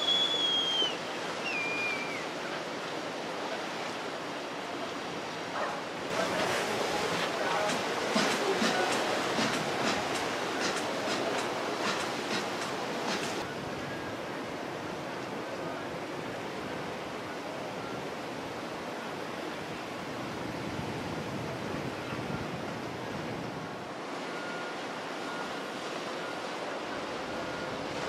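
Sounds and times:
water rushing: 0:00.0 - 0:28.0
wind: 0:00.0 - 0:28.0
faint thin steady tone: 0:24.2 - 0:27.9.

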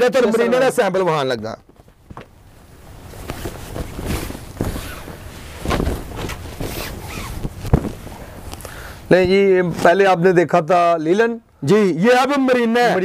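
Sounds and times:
cloth rustling: 0:01.6 - 0:10.2
fabric swishes: 0:01.9 - 0:10.0.

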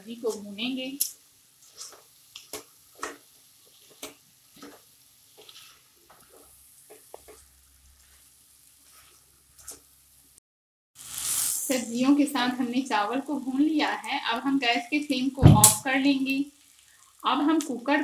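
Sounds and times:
faint sizzle: 0:00.0 - 0:10.4, 0:11.0 - 0:18.0
spatula scraping and tapping a pan: 0:00.3 - 0:09.9.

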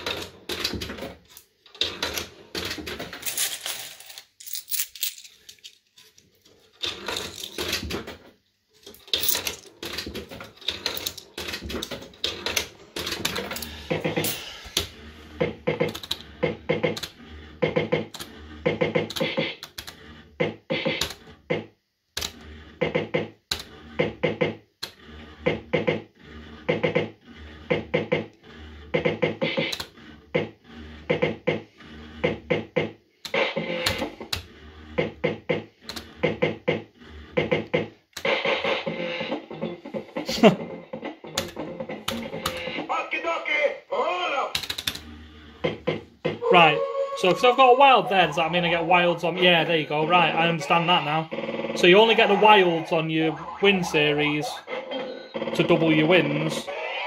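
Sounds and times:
slot machine reels spinning: 0:08.9 - 0:21.3, 0:22.2 - 0:40.6, 0:41.2 - 0:43.0, 0:44.5 - 0:57.0
electronic beeps and jingles: 0:46.4 - 0:56.3.

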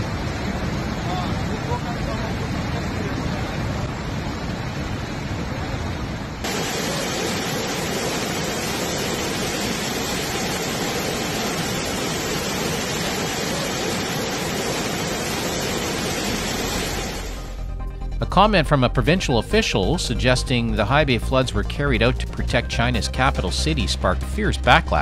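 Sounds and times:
rushing floodwater: 0:00.0 - 0:17.4.

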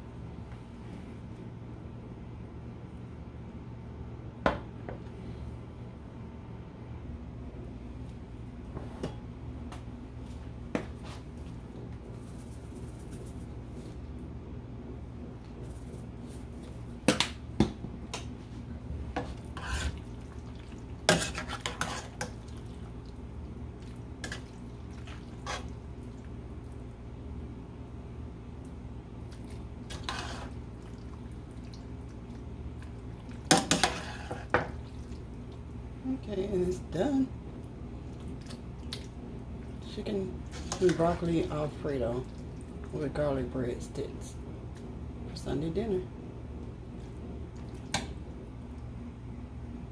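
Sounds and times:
low steady hum: 0:00.0 - 0:49.9
wet squelching of stirred pasta: 0:18.2 - 0:27.1, 0:28.5 - 0:36.0, 0:37.5 - 0:43.6.

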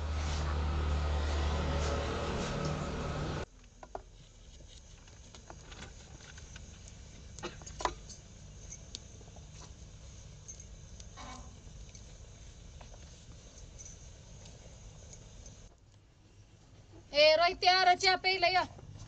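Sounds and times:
small clicks and crackles: 0:03.6 - 0:16.0.

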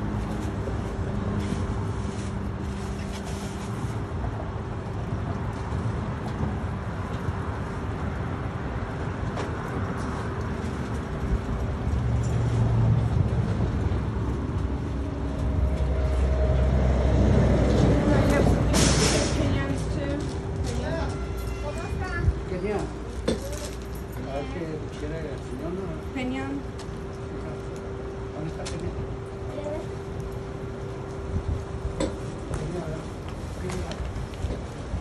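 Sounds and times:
chile roaster roaring: 0:00.0 - 0:35.0.

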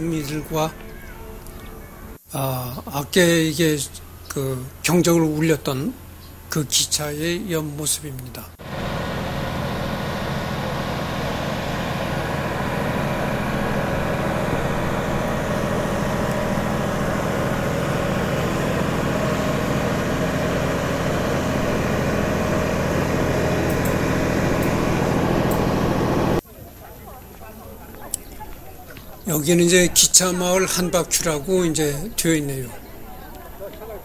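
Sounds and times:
engine drone: 0:08.5 - 0:26.4.

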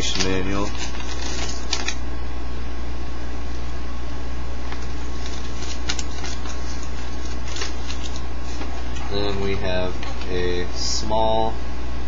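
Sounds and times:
paper rustling: 0:00.0 - 0:02.0, 0:04.7 - 0:10.4.

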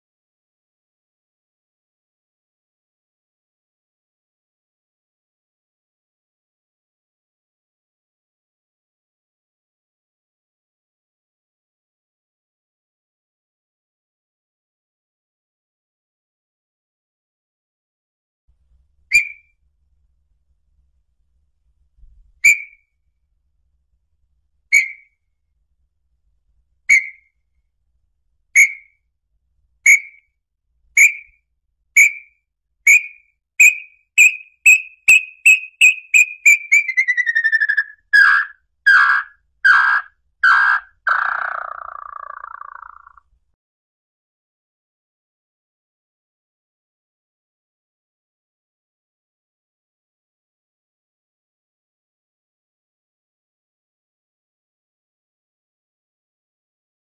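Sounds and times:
bird whistling song: 0:19.1 - 0:19.5, 0:22.4 - 0:22.9, 0:24.7 - 0:25.2, 0:26.9 - 0:27.4, 0:28.6 - 0:29.0, 0:29.8 - 0:30.3, 0:31.0 - 0:31.4, 0:32.0 - 0:43.2.

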